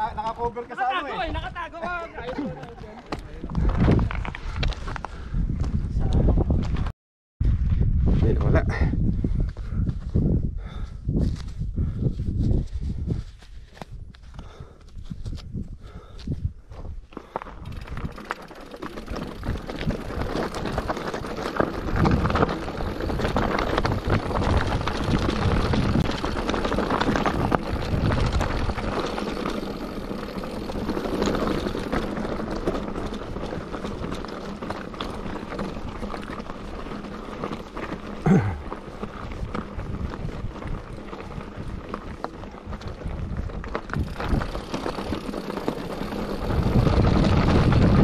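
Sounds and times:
bike tyres crunching over stones: 0:00.0 - 0:05.8, 0:13.4 - 0:48.0
bike parts rattling: 0:17.2 - 0:48.0.

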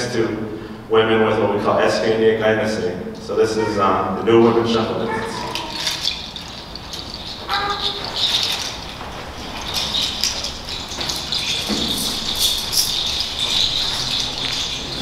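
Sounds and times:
hand rattle shaken: 0:04.5 - 0:15.0.

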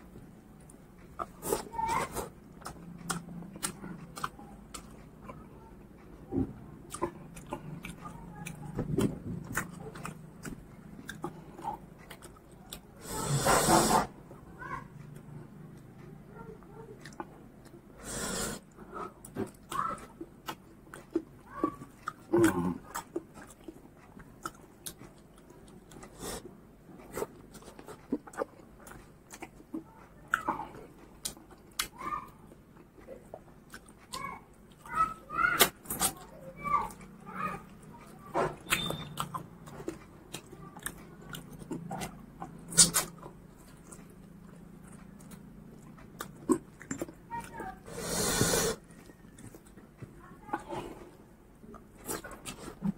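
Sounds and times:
person chewing with wet smacks: 0:00.0 - 0:13.2, 0:13.9 - 0:52.9
wet hissing sound: 0:13.1 - 0:14.1, 0:47.9 - 0:48.8.

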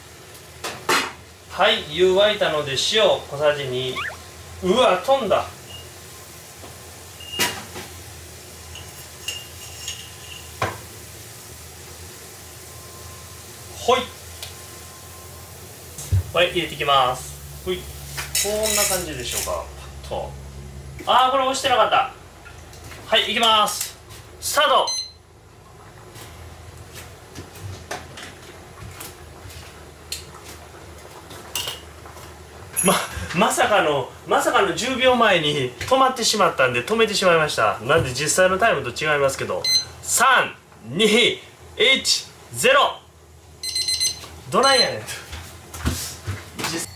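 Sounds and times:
pot boiling low rumble: 0:00.0 - 0:24.6, 0:25.2 - 0:43.7.

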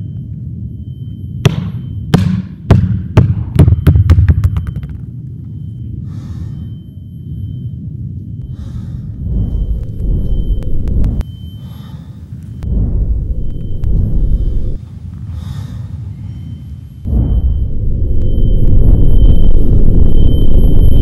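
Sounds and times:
basketball bouncing on hardwood floor: 0:01.5 - 0:04.9
low rumbling drone: 0:04.3 - 0:21.0
heavy breathing: 0:06.0 - 0:06.8, 0:08.4 - 0:09.3, 0:11.5 - 0:12.6, 0:15.0 - 0:16.2.

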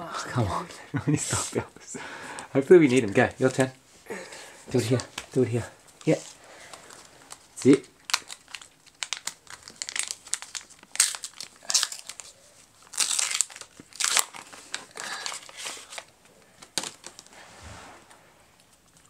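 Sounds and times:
plastic wrapper crinkling and tearing: 0:02.8 - 0:17.3.

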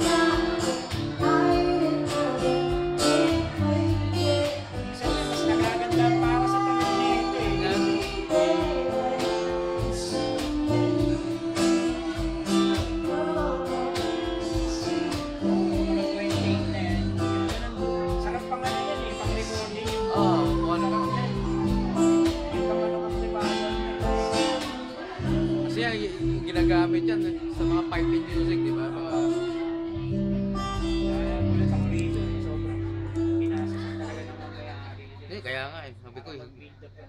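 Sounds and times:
cajon tapping: 0:00.0 - 0:26.8
person singing: 0:00.0 - 0:30.2
strummed acoustic guitar: 0:00.0 - 0:36.1.

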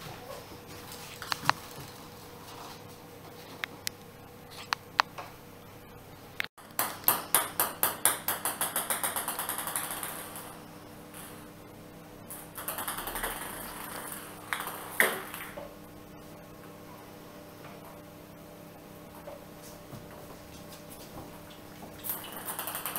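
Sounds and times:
ball bouncing on tiled floor: 0:06.6 - 0:11.5, 0:12.3 - 0:15.8, 0:19.2 - 0:22.9.

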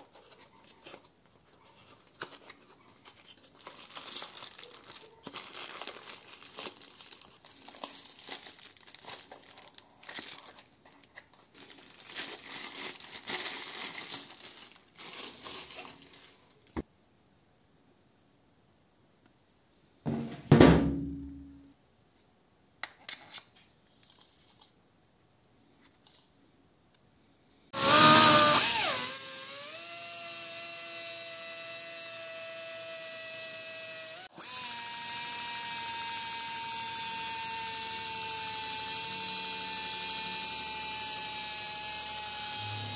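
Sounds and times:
pneumatic drill whining: 0:27.8 - 0:42.9.

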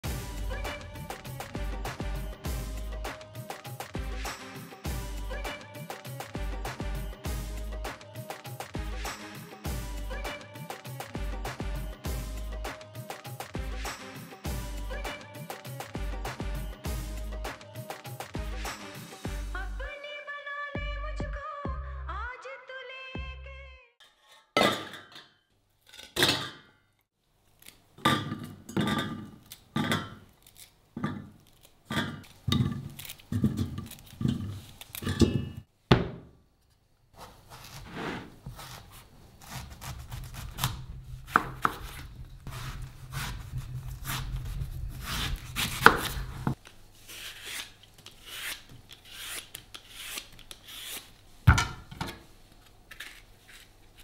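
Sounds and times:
knife slicing through fruit: 0:37.2 - 0:51.1.

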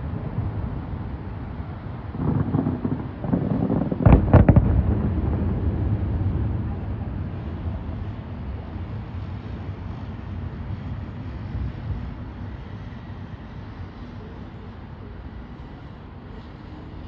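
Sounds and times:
firework bangs: 0:00.0 - 0:09.9
low rumble: 0:00.0 - 0:13.8.

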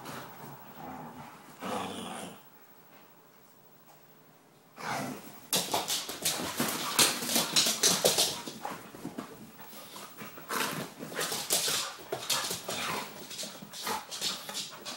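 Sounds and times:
dogs scuffling: 0:05.5 - 0:14.9.

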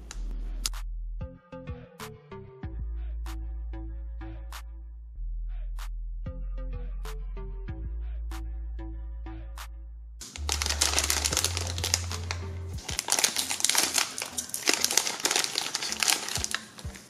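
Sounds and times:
background music: 0:00.0 - 0:05.2, 0:06.3 - 0:17.0
plastic bag crinkling: 0:10.2 - 0:17.0.

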